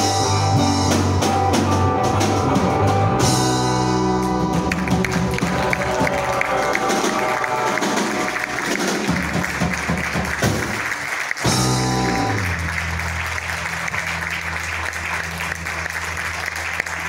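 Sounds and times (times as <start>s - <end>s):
live guitar music: 0.0s - 17.0s
audience applauding: 4.2s - 17.0s.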